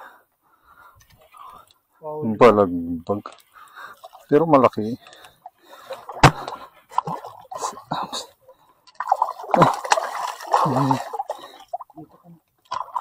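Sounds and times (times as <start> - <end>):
fish splashing at water surface: 8.8 - 11.9.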